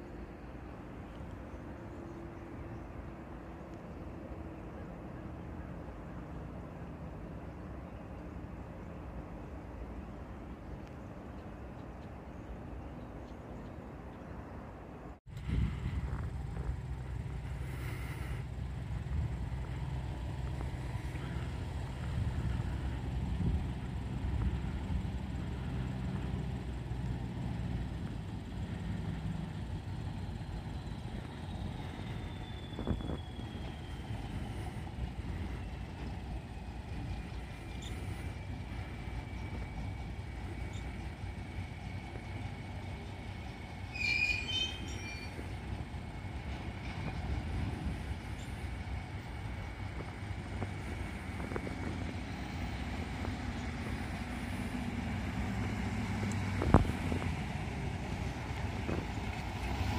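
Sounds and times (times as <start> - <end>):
train low rumble: 0.0 - 59.9
high wheel squeal: 30.8 - 48.8
sharp squeaks: 43.9 - 45.6.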